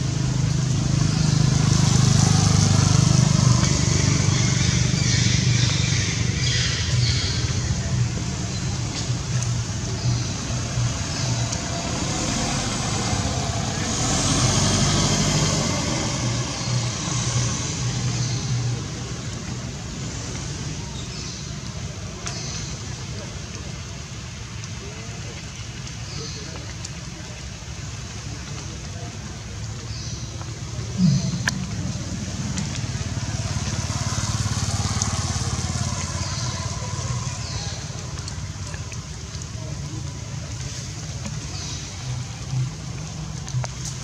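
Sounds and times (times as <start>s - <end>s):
motor engine running: 30.8s - 38.8s.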